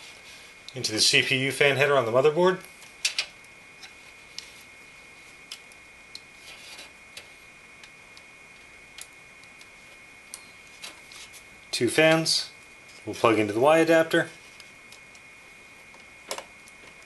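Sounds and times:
cables rustling: 2.6s - 17.0s.

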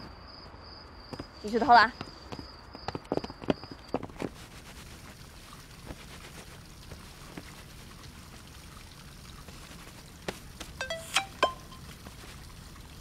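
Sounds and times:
pool water lapping: 4.3s - 13.0s.

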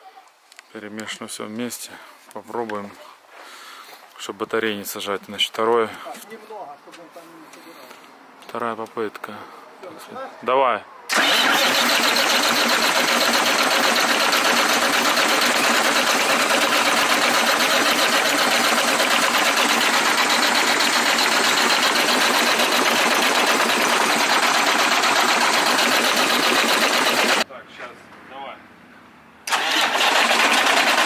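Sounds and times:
diesel engine starter cranking: 11.1s - 27.4s, 29.4s - 31.0s.

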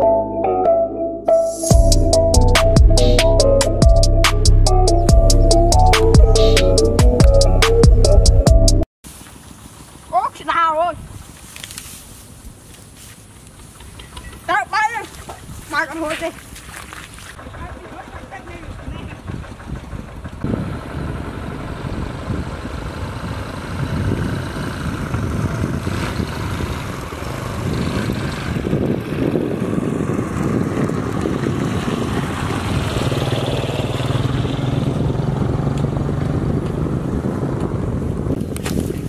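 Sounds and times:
vehicle engine running: 17.4s - 38.6s.

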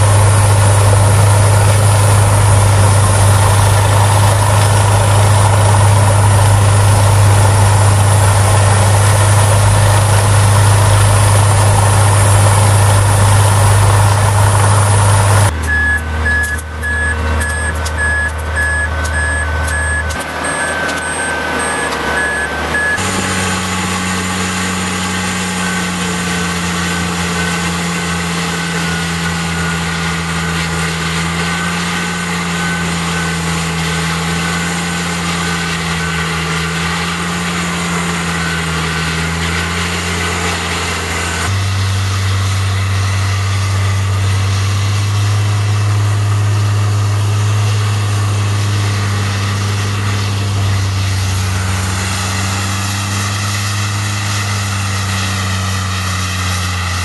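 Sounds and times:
wood grinder engine drone: 0.0s - 57.0s.

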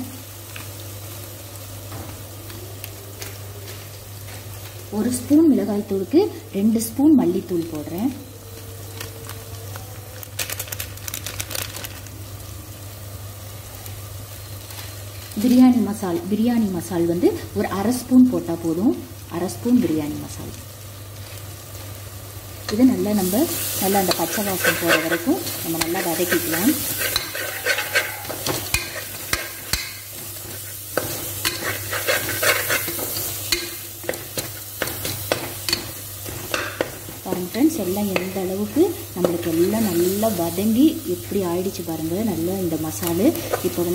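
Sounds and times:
food sizzling: 0.0s - 43.9s
spice rattling into pot: 10.2s - 12.4s, 22.2s - 40.6s
metal ladle scraping a pot: 24.1s - 30.7s, 31.4s - 33.2s.

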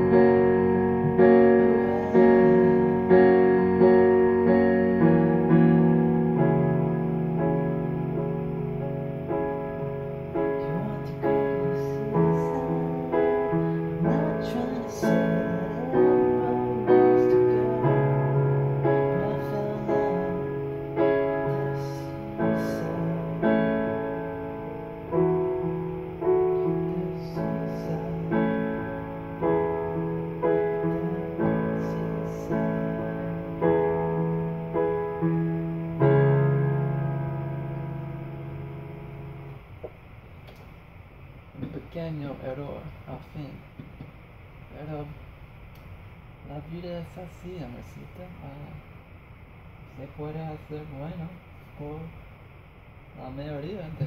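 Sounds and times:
digital piano played gently: 0.0s - 39.9s, 53.4s - 54.0s.

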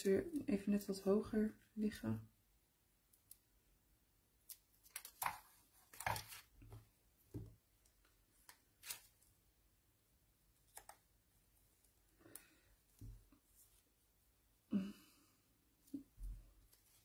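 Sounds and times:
paper rustling and tapping: 4.8s - 7.6s.

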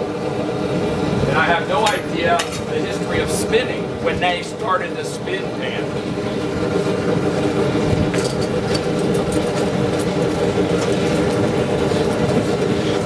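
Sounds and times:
mechanical motor drone: 0.0s - 13.0s.

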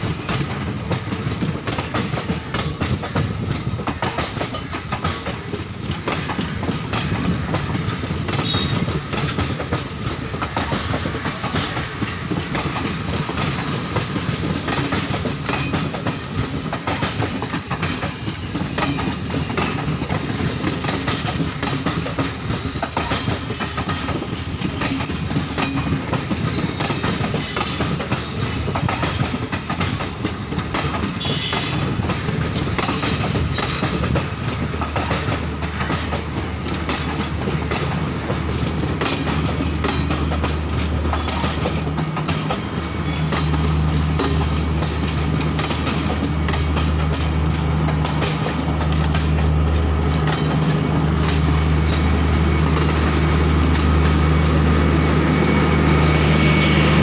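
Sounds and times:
train wheels clattering over rail joints: 0.0s - 57.0s.

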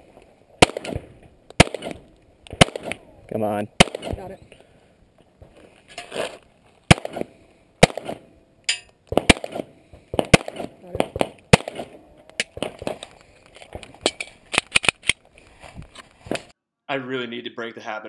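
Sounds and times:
pistol shots: 0.6s - 3.0s, 3.8s - 4.2s, 6.9s - 8.3s, 9.1s - 13.0s.

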